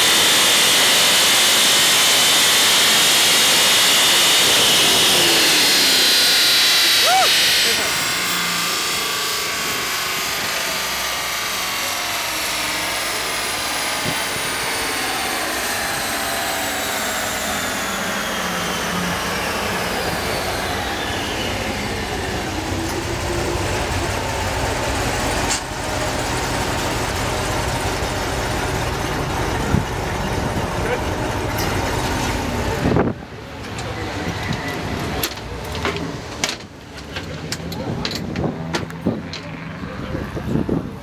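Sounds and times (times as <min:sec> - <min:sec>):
dyno rollers whining: 0:00.0 - 0:41.0
engine low rumble: 0:00.0 - 0:41.0.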